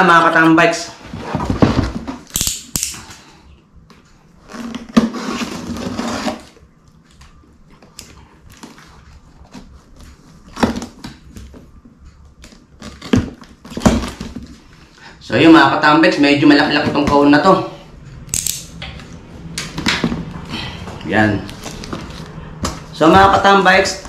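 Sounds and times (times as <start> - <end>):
cardboard box scraping: 4.5 - 6.6
utility knife slitting tape: 18.3 - 18.7.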